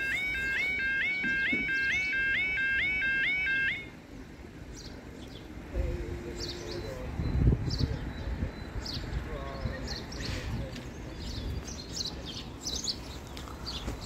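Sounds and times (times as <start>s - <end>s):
level crossing alarm yelping: 0.0s - 4.0s
birds chirping: 0.0s - 14.0s.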